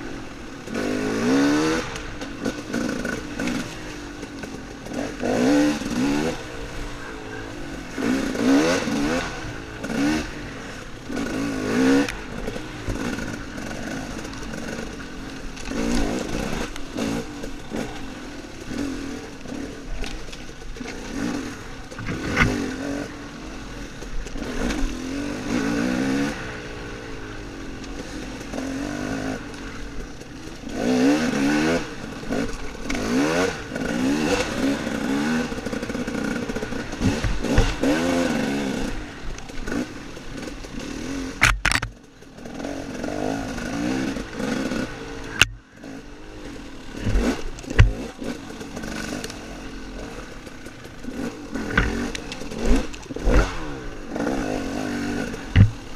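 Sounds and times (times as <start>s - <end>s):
dirt bike engine revving: 0.0s - 55.9s
knocks and clatter: 47.0s - 48.2s, 55.5s - 55.9s.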